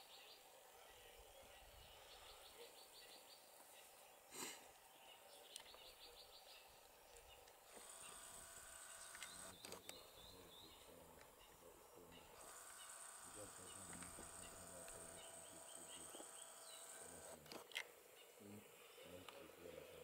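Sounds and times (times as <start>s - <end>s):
thin high buzz: 12.2s - 17.4s.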